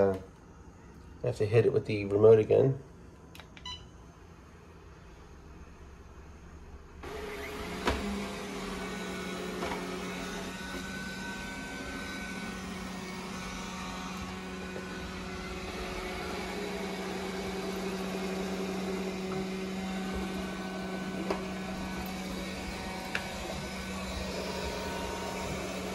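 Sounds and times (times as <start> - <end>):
robot vacuum motor humming: 7.0 - 25.9.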